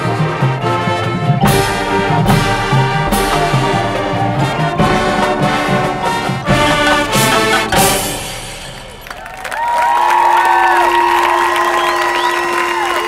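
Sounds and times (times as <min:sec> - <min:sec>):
marching band playing brass music: 0:00.0 - 0:09.4.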